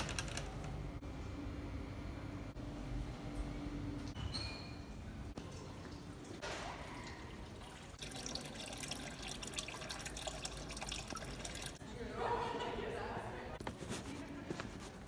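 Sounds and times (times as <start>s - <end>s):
fizzing water trickle: 5.1s - 11.8s.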